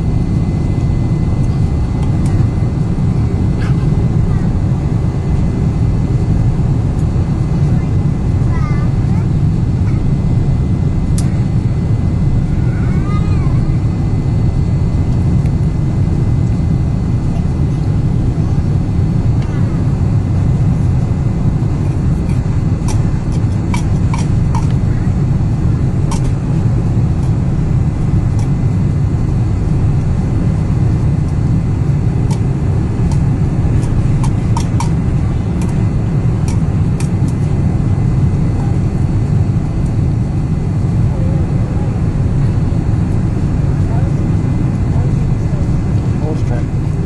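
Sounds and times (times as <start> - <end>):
jet engine roar in cabin: 0.0 - 47.0.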